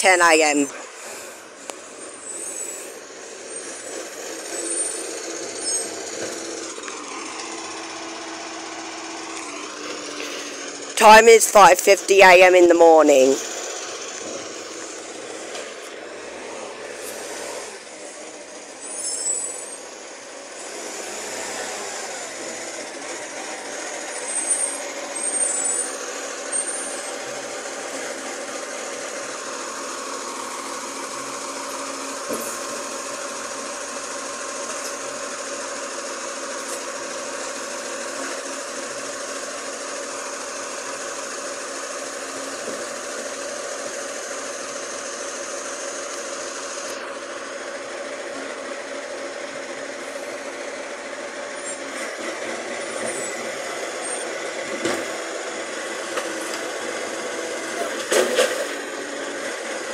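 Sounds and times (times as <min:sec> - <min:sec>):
garbage truck engine running: 0:00.0 - 0:59.9
short high squeals: 0:02.0 - 0:03.8, 0:04.6 - 0:06.0, 0:18.8 - 0:19.8.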